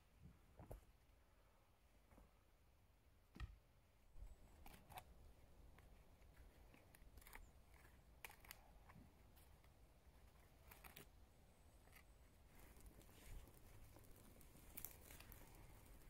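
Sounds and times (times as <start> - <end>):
faint clicks and scrapes: 4.2 - 16.0.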